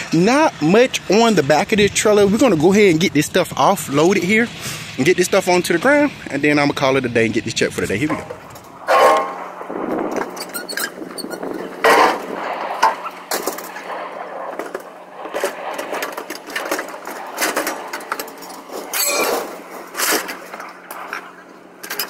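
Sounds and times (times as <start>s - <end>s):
metal clatter: 8.0s - 22.0s
scrap metal clanking and scraping: 8.1s - 9.6s, 10.2s - 22.0s.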